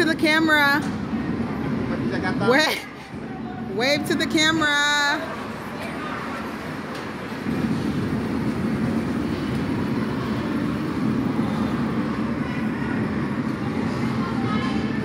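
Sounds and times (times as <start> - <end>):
go-karts rumbling past: 4.2 - 15.0.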